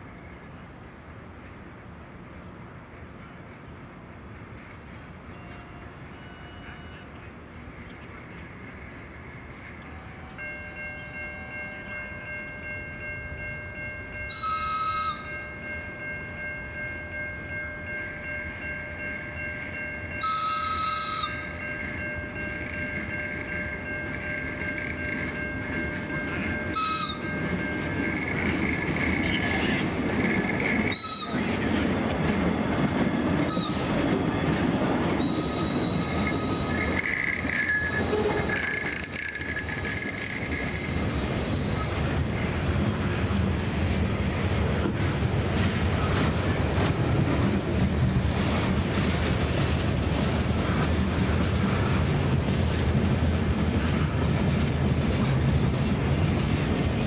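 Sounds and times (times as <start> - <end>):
train wheels squealing: 14.2 - 15.8, 20.2 - 25.5, 26.3 - 31.6, 33.4 - 34.0, 35.2 - 42.2
air whistle blasts: 14.3 - 15.3
freight cars rumbling and clattering: 22.0 - 57.0.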